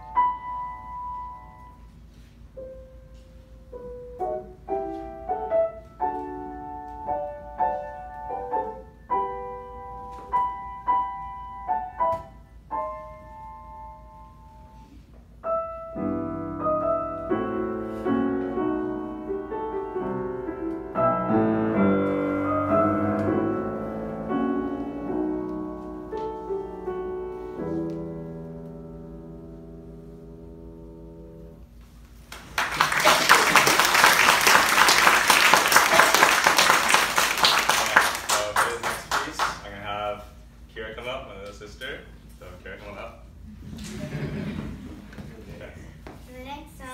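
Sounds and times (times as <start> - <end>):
grand piano playing: 0.0 - 31.8.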